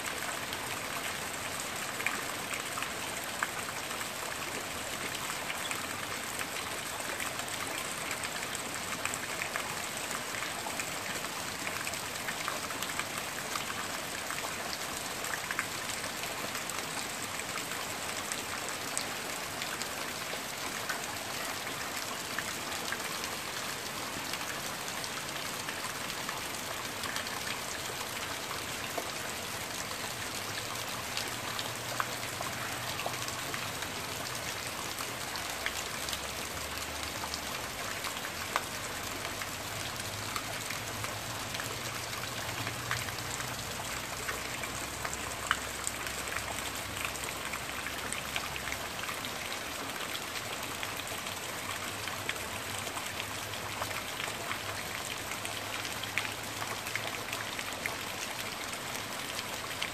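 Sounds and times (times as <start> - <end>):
rain on foliage: 0.0 - 59.9
raindrops hitting close by: 0.0 - 59.9.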